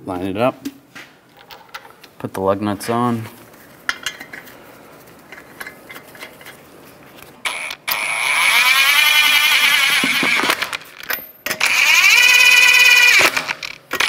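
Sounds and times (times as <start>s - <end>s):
impact wrench whining: 7.4s - 14.0s.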